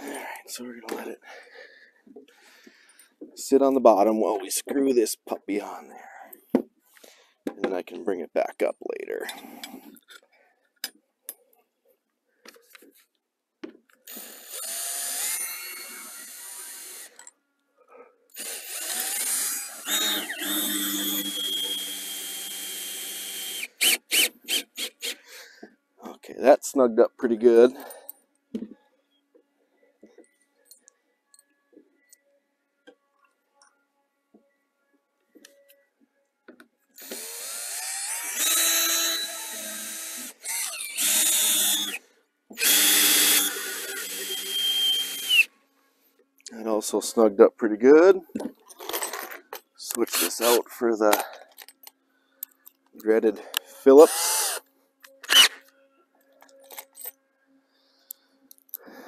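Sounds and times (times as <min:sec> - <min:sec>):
power drill driving a screw: 0:14.1 - 0:17.2, 0:18.3 - 0:25.2, 0:37.0 - 0:42.0, 0:42.6 - 0:45.5, 0:54.0 - 0:54.6, 0:55.2 - 0:55.6.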